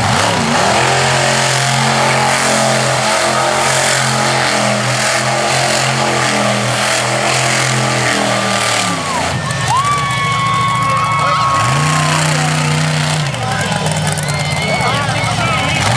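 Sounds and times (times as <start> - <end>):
truck engine revving high: 0.0 - 15.9.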